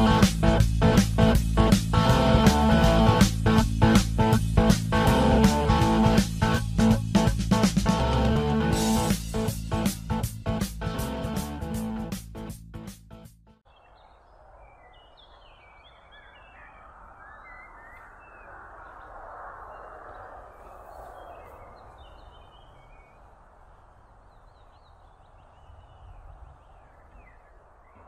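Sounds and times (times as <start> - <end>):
small birds chirping: 13.6 - 28.0
low rumble: 13.7 - 28.0.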